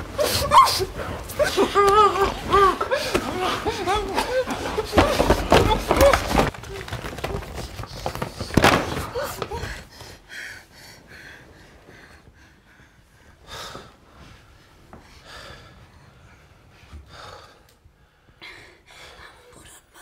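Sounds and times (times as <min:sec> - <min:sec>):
man breathing heavily: 0:07.8 - 0:19.5.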